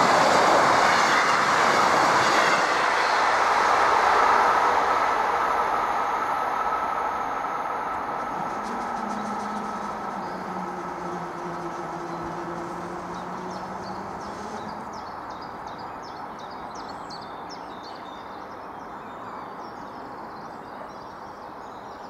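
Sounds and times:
low hum: 0:07.7 - 0:15.0
outdoor rustle: 0:08.1 - 0:15.1
bird chirping: 0:08.4 - 0:21.1.

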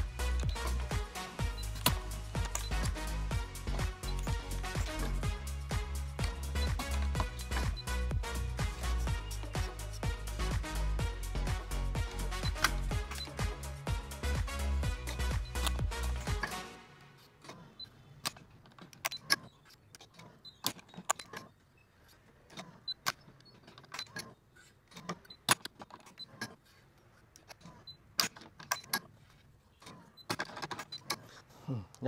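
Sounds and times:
background music: 0:00.0 - 0:17.6.

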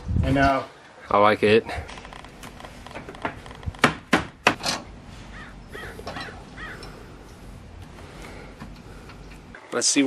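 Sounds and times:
sharp knocks and clicks: 0:02.0 - 0:04.9
crow cawing: 0:05.3 - 0:07.2.

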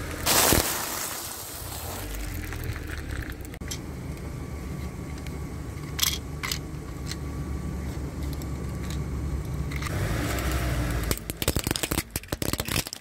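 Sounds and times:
car running low rumble: 0:00.0 - 0:00.3, 0:01.5 - 0:13.0
plastic cracking under tyre: 0:00.2 - 0:03.6, 0:10.3 - 0:13.0.

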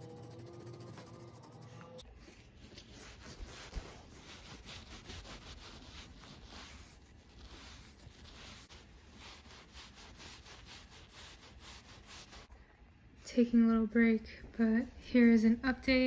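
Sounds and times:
rubbing on toy fur: 0:02.2 - 0:12.5.

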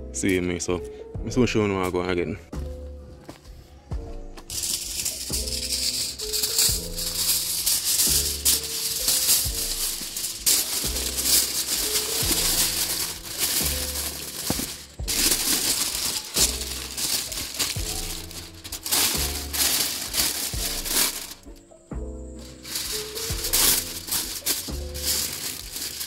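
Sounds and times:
background music with bass line: 0:01.2 - 0:26.0
aluminium foil crinkling: 0:04.4 - 0:21.6, 0:22.4 - 0:26.0.

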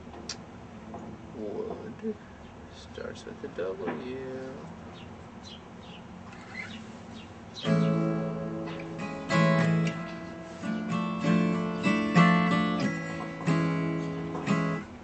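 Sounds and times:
acoustic guitar strumming: 0:06.3 - 0:15.0.

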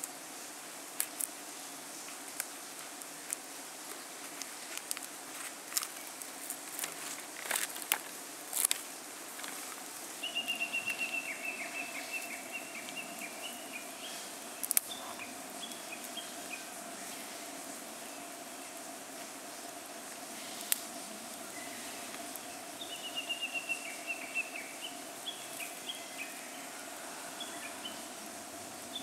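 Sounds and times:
bird singing a fast trill: 0:10.2 - 0:14.2, 0:22.8 - 0:26.6
sharp clicks and light snaps: 0:14.6 - 0:15.0.

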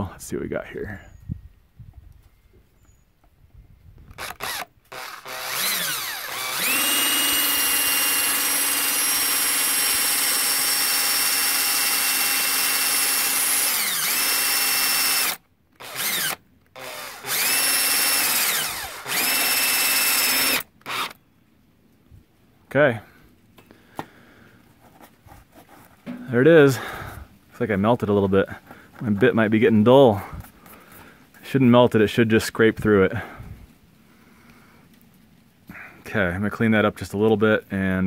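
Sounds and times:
electric drill whining: 0:04.1 - 0:21.2.

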